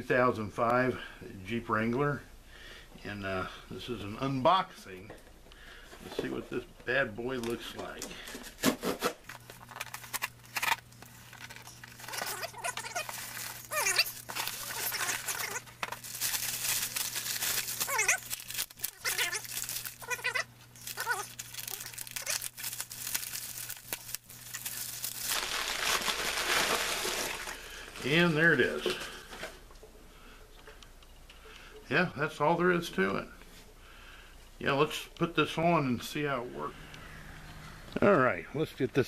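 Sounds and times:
plastic mailer crinkling and tearing: 8.5s - 29.1s
packing tape ripping: 8.6s - 27.6s.

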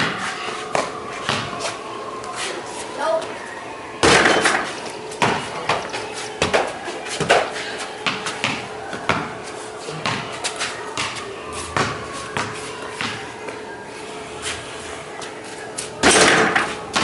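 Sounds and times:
basketball bouncing on concrete: 0.0s - 1.6s, 8.0s - 9.3s, 10.0s - 10.4s, 11.0s - 13.3s.

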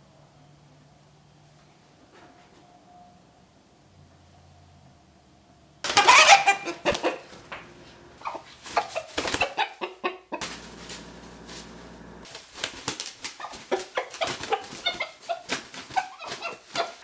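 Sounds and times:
chicken wings flapping: 5.9s - 9.8s, 10.4s - 17.0s
chicken calling: 5.9s - 11.5s, 13.3s - 17.0s.

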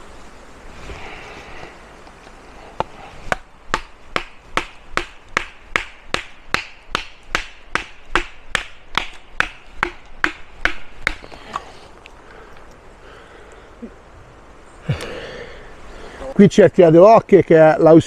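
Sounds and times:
knife chopping into wooden log: 3.3s - 11.3s.

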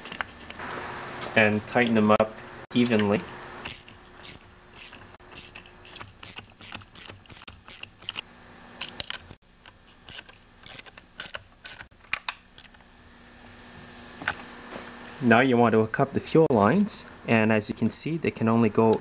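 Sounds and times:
socket ratchet clicking: 3.6s - 8.2s, 8.9s - 12.8s.

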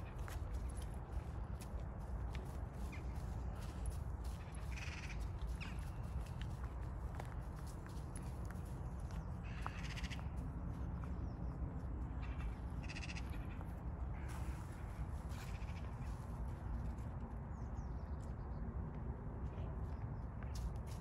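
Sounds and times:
steady low rumble: 0.0s - 21.0s
distant raspy animal calls: 4.4s - 5.8s, 9.4s - 10.3s, 12.2s - 14.5s.

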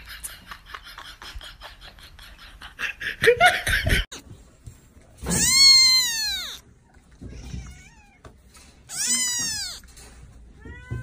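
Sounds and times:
kitten meowing: 5.3s - 6.6s, 8.9s - 9.8s.

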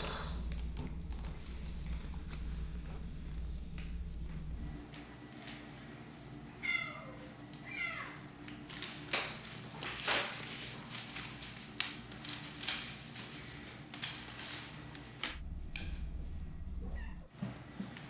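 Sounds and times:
plastic straws clattering on floor: 8.5s - 15.4s.

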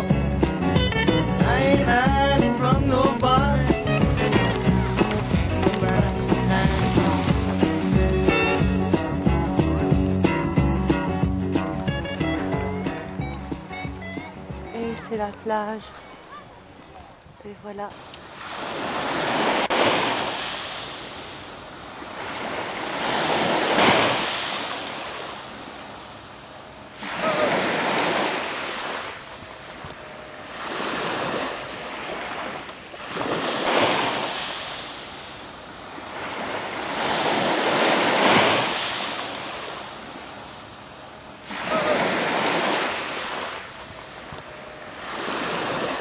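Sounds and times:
waves washing over pebble beach: 5.0s - 8.0s, 18.0s - 46.0s.

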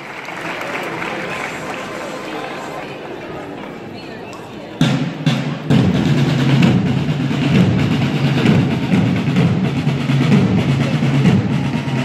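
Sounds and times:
drums playing a continuous roll: 4.8s - 12.0s.

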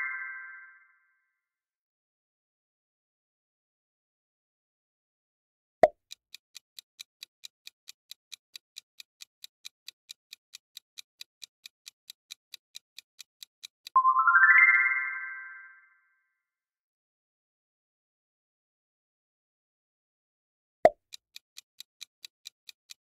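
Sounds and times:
clock-like ticking: 5.8s - 14.0s, 20.9s - 23.0s
bright rising chime: 14.0s - 15.8s.

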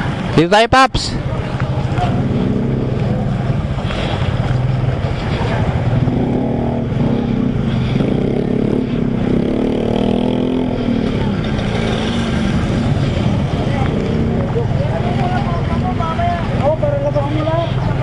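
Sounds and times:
water splashing: 1.2s - 8.0s, 10.7s - 16.8s.

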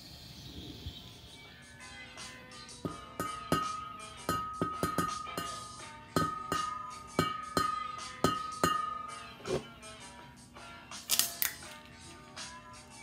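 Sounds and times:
sharp percussive hits: 2.8s - 9.1s.

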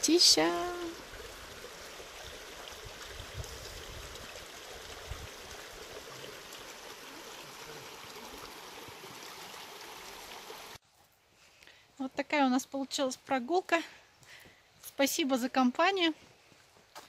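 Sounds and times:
creek babbling over rocks: 0.0s - 10.8s.

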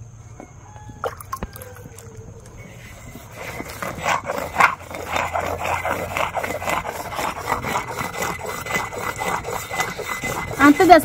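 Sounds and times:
grinding stone scraping sand: 2.5s - 11.0s.

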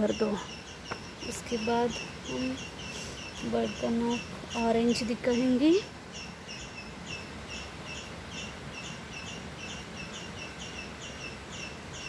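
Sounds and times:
low even hiss: 0.0s - 12.0s.

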